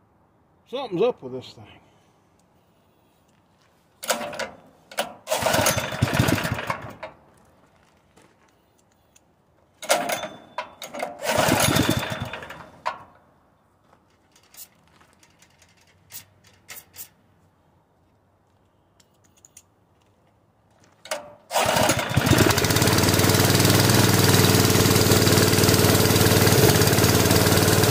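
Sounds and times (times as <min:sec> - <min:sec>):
engine pull-started and stalling: 0:04.0 - 0:07.2, 0:09.8 - 0:13.0, 0:21.0 - 0:27.9.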